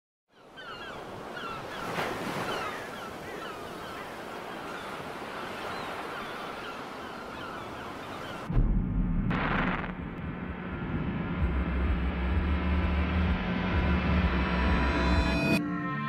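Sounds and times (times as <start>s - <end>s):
ocean waves washing: 0.4s - 8.7s, 9.3s - 15.4s
deep loud low sound: 8.5s - 15.6s.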